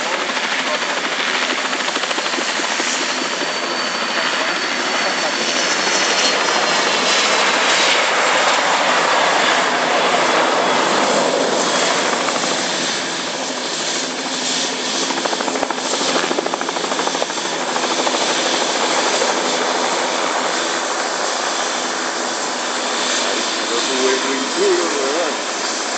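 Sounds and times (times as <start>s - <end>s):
jet engine roar: 0.0s - 25.9s.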